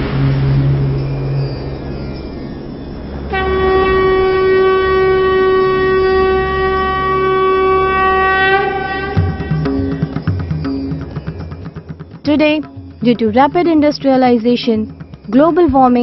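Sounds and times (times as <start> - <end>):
steady horn-like note: 3.3 - 9.7.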